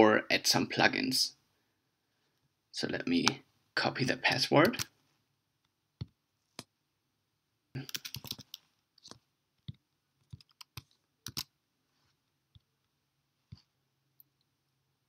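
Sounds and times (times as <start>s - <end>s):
keyboard keystrokes: 7.9s - 8.6s, 9.7s - 11.5s
mouse clicks: 7.9s - 11.5s.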